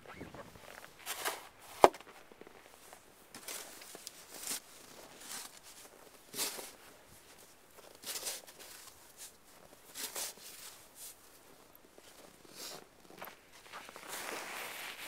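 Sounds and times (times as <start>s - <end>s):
snow shovel scraping snow: 13.6s - 15.0s.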